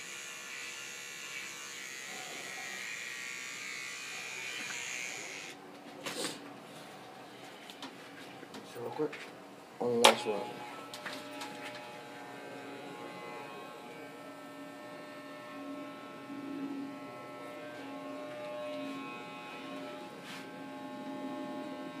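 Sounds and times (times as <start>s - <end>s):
electric hair clippers buzzing: 0.0s - 5.6s, 10.0s - 22.0s.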